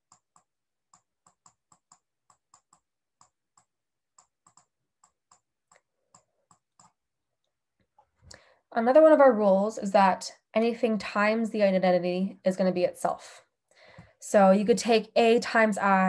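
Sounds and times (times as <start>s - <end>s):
stylus tapping on tablet screen: 0.0s - 7.0s.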